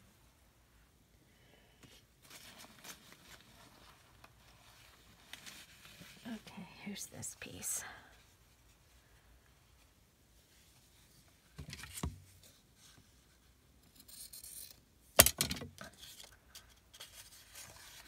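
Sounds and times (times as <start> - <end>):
paper rustling: 2.2 - 6.4, 15.8 - 18.0.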